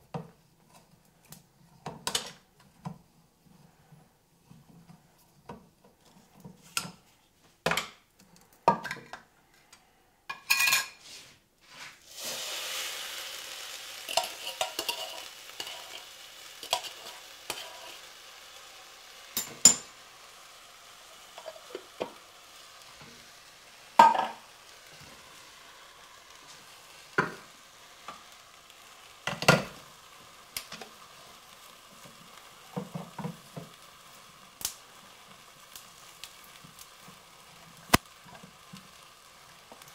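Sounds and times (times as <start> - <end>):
cans and utensils clanking: 10.3 - 11.0, 14.0 - 18.0, 19.4 - 19.9, 24.0 - 24.4
liquid sizzling in hot pan: 10.5 - 39.9.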